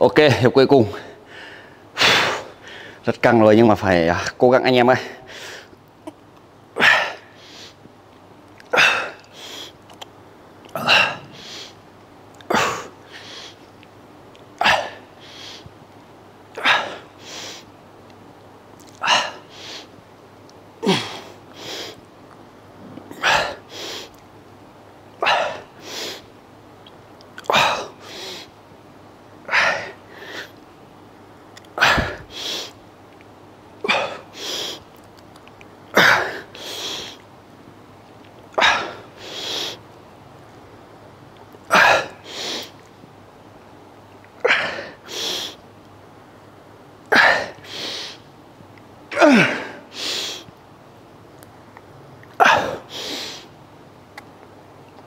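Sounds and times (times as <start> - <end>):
man grunting: 20.8 - 21.3, 49.1 - 49.9
man exhaling forcefully: 49.2 - 50.5.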